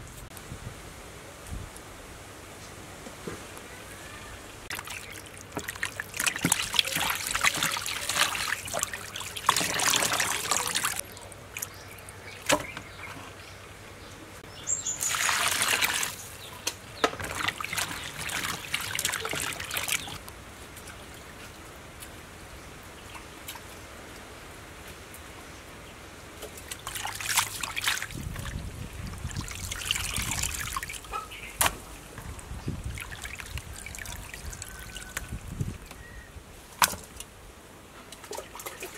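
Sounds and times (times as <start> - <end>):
water trickling and splashing: 4.6 - 24.3, 26.4 - 36.1, 38.0 - 38.9
hands squelching in water: 4.7 - 11.8, 14.9 - 16.4, 17.2 - 20.2, 26.6 - 31.7.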